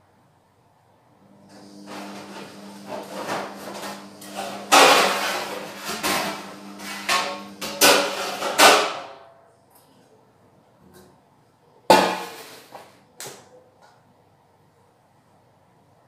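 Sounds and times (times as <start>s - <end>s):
metal pots clanking: 1.8s - 9.1s.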